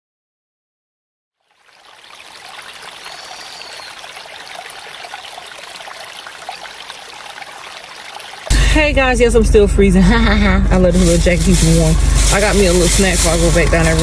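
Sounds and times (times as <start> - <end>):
small waves washing on shore: 1.5 - 8.6.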